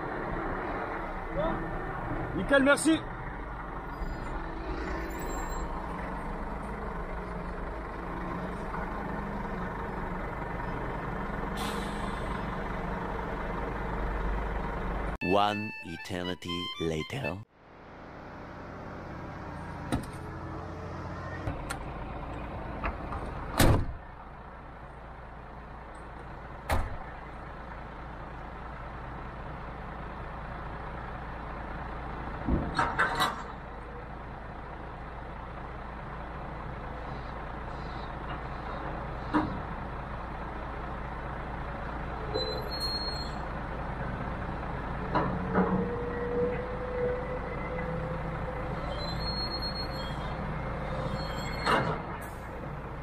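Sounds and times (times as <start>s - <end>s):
diesel engine running: 0.0s - 53.0s
clunks and rattles: 19.8s - 20.3s, 22.8s - 24.0s, 32.4s - 33.7s, 38.2s - 39.8s, 45.0s - 46.6s, 51.2s - 52.4s.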